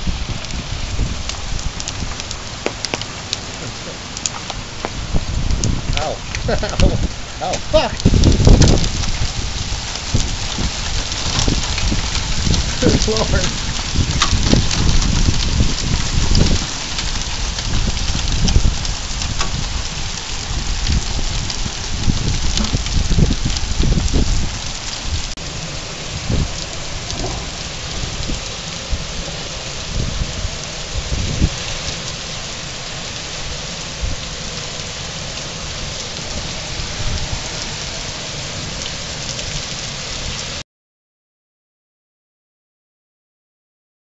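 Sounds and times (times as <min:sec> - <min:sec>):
low rumbling: 0:00.0 - 0:39.4
heavy rain and hail: 0:00.0 - 0:40.6.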